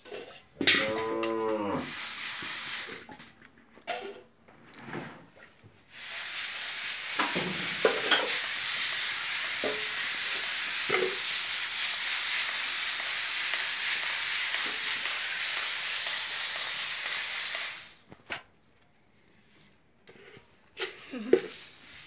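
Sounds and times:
steady hiss: 1.8s - 3.1s, 5.9s - 18.1s.

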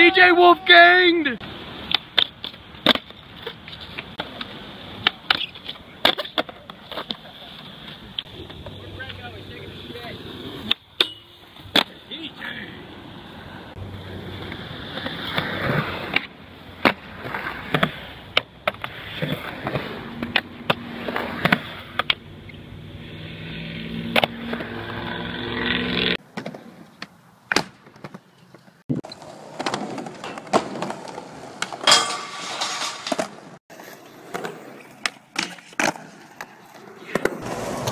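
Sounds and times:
skateboard wheels rolling on concrete: 0.0s - 37.9s
skateboard clacks popping and landing: 1.8s - 7.3s, 26.2s - 28.3s, 29.0s - 33.6s, 34.2s - 37.9s
skateboard grinding ledge: 29.2s - 37.9s.

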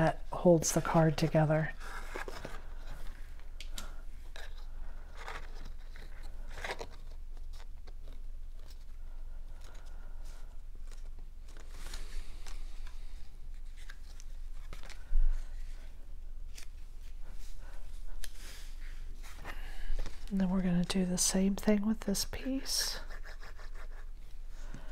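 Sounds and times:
cardstock rustling and creasing: 0.9s - 15.8s.

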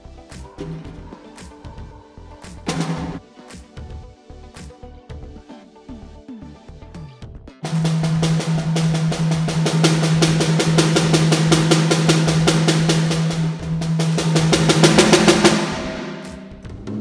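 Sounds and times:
snare drum strokes: 2.7s - 3.6s, 7.7s - 17.0s
toms playing: 7.7s - 16.9s.

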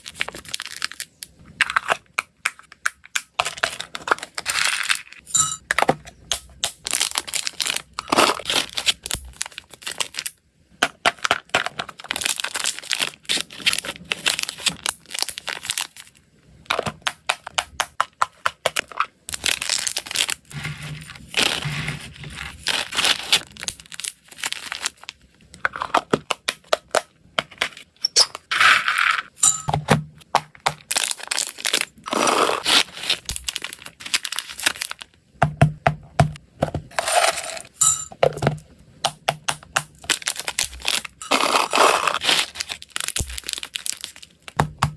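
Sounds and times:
plastic snack bags crinkling: 0.0s - 2.7s, 3.3s - 10.4s, 11.1s - 16.8s, 18.8s - 27.8s, 30.7s - 35.2s, 39.7s - 44.6s
plastic packaging clicks and taps: 38.2s - 40.8s.

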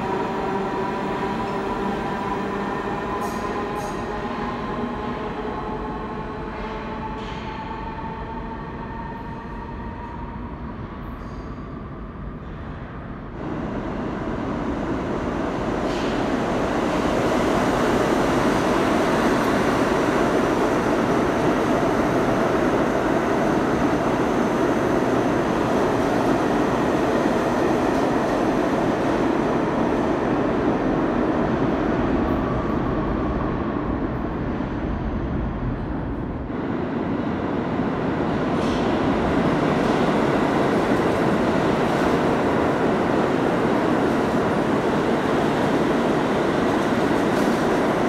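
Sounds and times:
subway train rumbling past: 0.0s - 48.0s.

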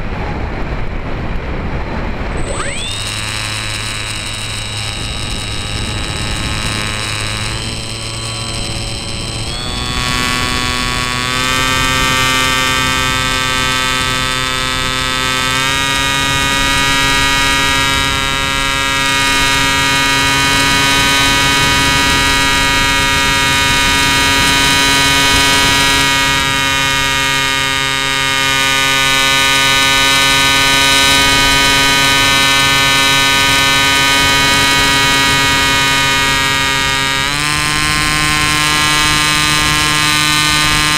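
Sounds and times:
electric model plane motor whine: 2.2s - 40.9s.

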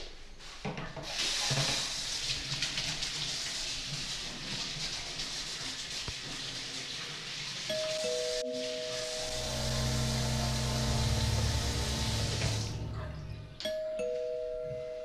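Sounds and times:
tap water running into sink: 1.0s - 13.1s
held musical tone: 7.7s - 15.0s.

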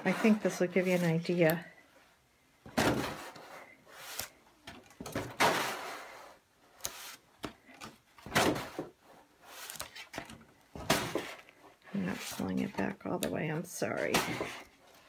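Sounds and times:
book pages turning: 3.3s - 4.4s, 6.8s - 13.3s.

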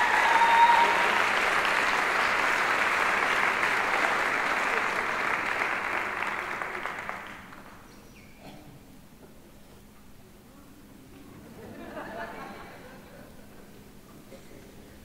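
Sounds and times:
audience applauding: 0.0s - 7.9s.

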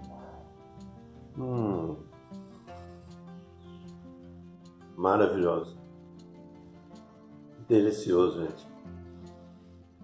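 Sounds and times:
background music: 0.0s - 10.0s
man humming mmm while chewing: 1.3s - 2.6s.

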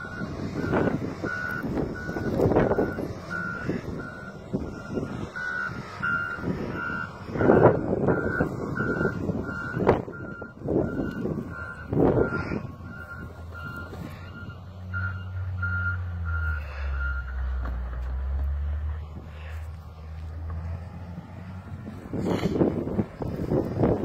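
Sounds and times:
reversing alarm beeping: 0.0s - 17.4s.

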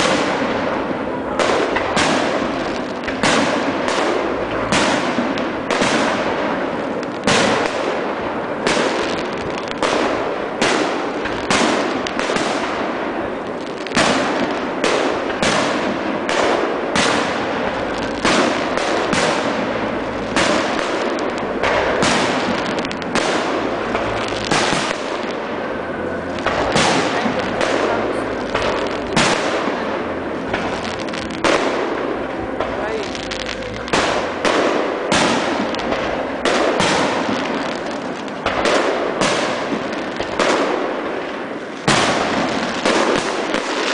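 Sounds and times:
echoing firework reports: 0.0s - 43.9s
fireworks shells bursting: 13.4s - 43.9s.

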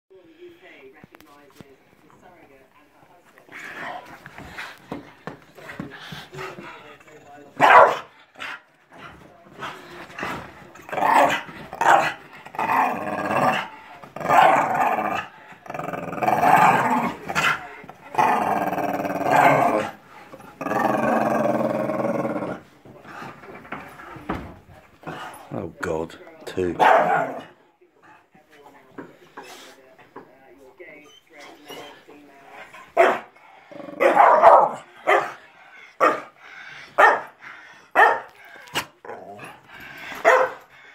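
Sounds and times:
dog growling: 5.7s - 23.4s, 26.9s - 27.6s, 31.6s - 40.9s
dog barking: 7.6s - 8.1s, 11.8s - 12.2s, 26.8s - 27.5s, 33.0s - 33.3s, 34.0s - 35.4s, 36.0s - 36.3s, 37.0s - 38.4s, 40.2s - 40.7s.

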